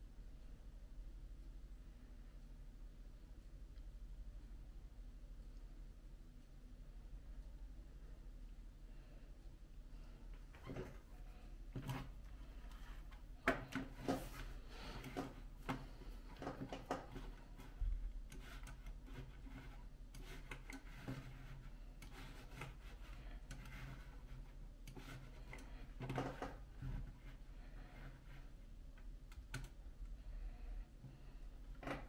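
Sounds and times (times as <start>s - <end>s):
low steady hum: 0.0s - 32.0s
computer mouse clicking and sliding: 10.5s - 29.8s.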